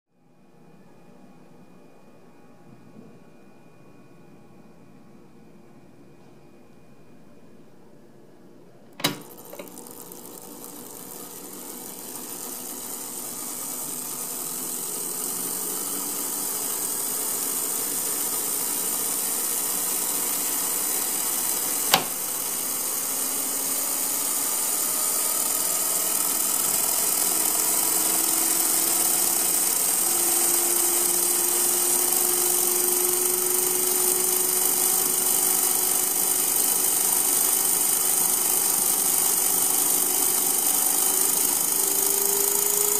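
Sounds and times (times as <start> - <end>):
model turbofan whine: 8.6 - 42.9
switch click: 9.0 - 9.8, 21.9 - 22.3.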